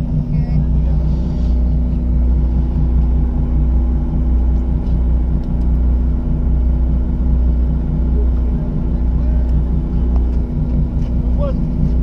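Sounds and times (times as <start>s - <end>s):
boat engine rumbling: 0.0s - 12.0s.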